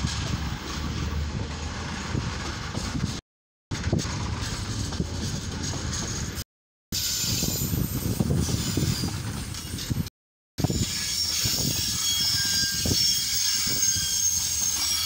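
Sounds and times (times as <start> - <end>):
train wheels rumbling and rattling: 0.0 - 15.0
high-pitched squeals: 10.6 - 15.0.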